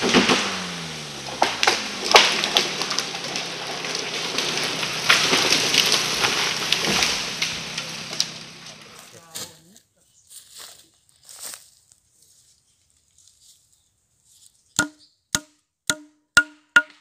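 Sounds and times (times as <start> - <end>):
chainsaw engine idling: 0.0 - 9.4
branches snapping: 0.0 - 9.5
leaves and branches rustling: 0.0 - 14.8.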